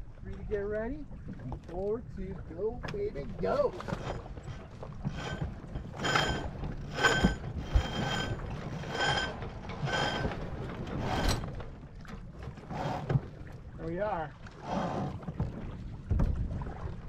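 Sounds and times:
winch pawls ratcheting: 3.8s - 11.5s.

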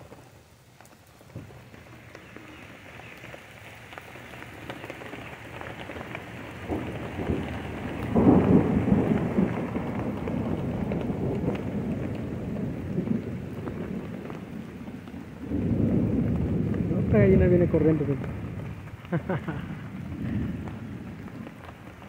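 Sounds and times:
steady rain: 0.0s - 22.0s
thunder rumble: 1.1s - 22.0s.

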